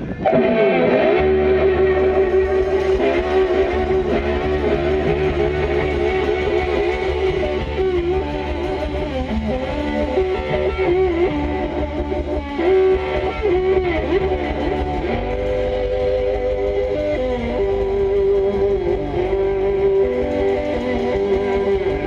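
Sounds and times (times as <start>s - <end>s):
blues band playing: 0.0s - 22.0s
electric guitar lead: 0.0s - 22.0s.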